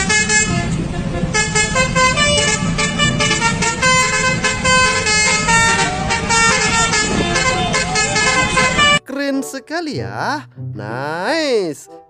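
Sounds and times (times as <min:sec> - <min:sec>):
road rumble: 0:00.0 - 0:09.0
truck engine: 0:00.0 - 0:09.0
truck musical horn: 0:00.0 - 0:09.5.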